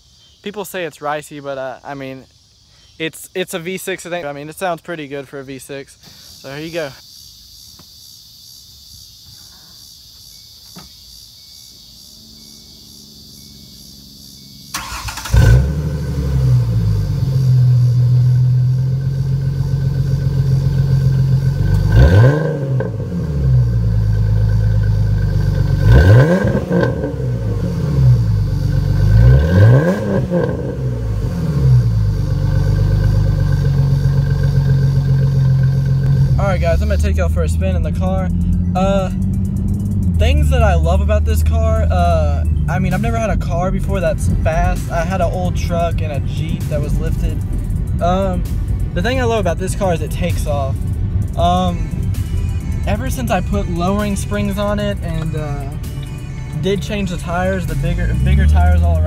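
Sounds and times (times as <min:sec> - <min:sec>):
car engine starting and revving: 0:12.1 - 0:59.0.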